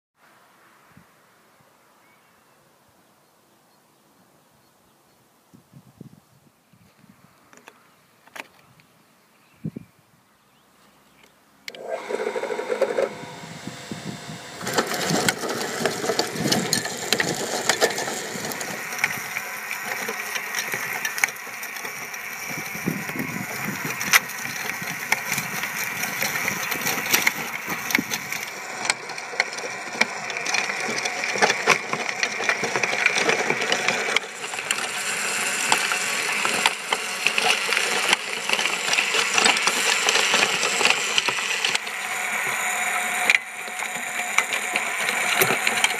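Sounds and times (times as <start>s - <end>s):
electric tiller motor running: 11.7s - 45.9s
tines churning dry soil: 11.7s - 45.9s.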